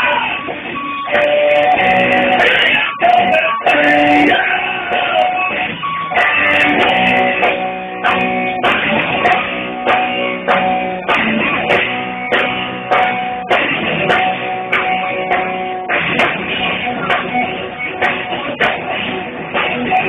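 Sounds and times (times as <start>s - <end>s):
bass and drums: 0.0s - 20.0s
electric guitar chords: 0.0s - 20.0s.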